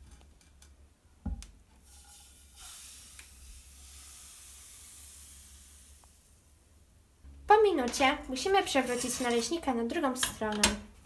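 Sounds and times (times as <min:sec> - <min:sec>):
batter sizzling in a pan: 0:01.8 - 0:06.6.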